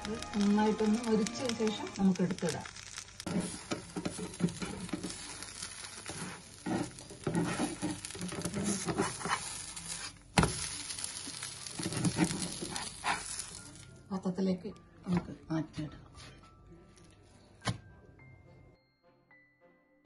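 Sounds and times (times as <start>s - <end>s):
food sizzling in oil: 0.0s - 14.0s
spatula scraping pan: 3.2s - 13.8s.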